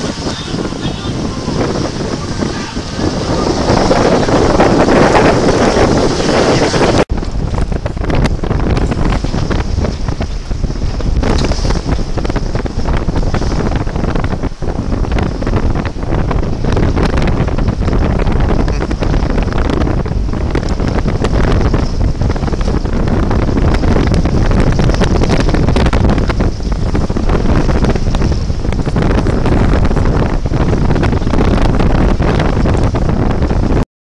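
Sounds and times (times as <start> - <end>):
wind buffeting microphone: 0.0 - 33.8.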